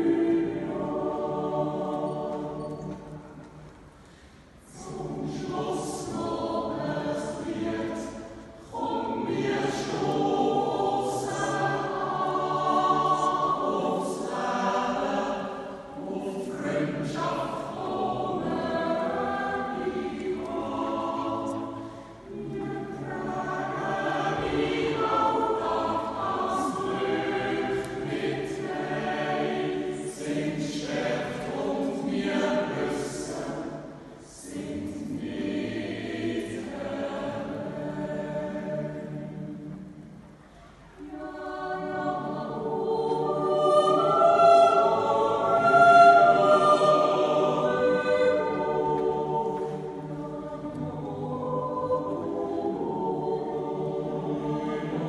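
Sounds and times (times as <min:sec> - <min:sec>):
choir yodeling a cappella: 0:00.0 - 0:55.0.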